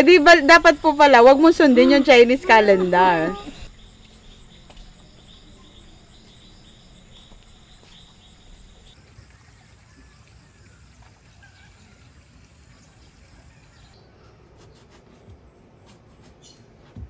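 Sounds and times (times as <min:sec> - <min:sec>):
insects chirping: 0:00.0 - 0:09.0.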